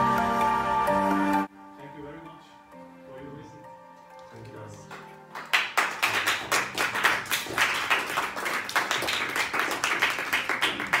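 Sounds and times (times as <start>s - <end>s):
small group applauding: 4.7s - 11.0s.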